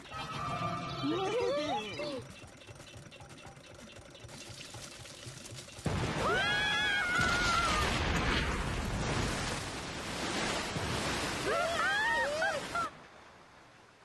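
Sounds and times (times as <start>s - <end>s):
gushing water: 3.0s - 12.9s
person yelling: 11.4s - 12.9s.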